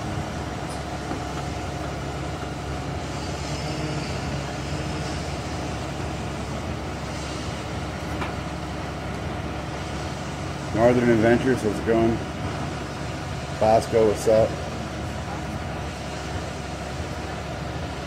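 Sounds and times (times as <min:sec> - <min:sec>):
vehicle engines humming: 0:00.0 - 0:18.0.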